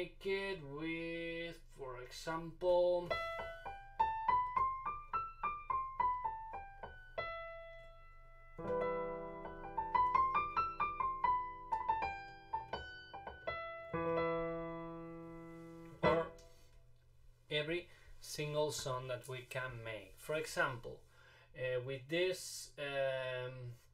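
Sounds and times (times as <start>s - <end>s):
piano playing: 3.0s - 16.7s.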